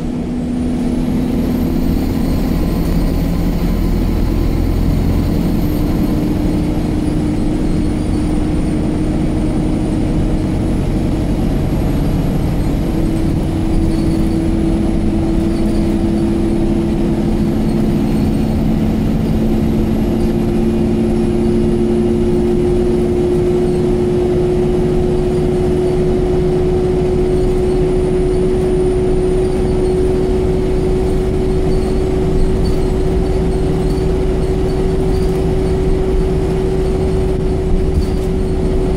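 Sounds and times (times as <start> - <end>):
bus engine rumble: 0.0 - 38.9
constant whine: 0.0 - 38.9
road noise: 0.0 - 38.9.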